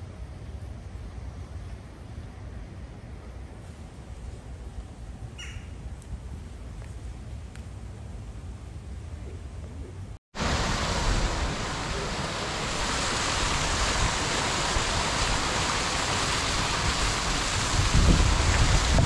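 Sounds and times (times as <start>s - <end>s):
waterfall splashing into pool: 10.4s - 19.0s.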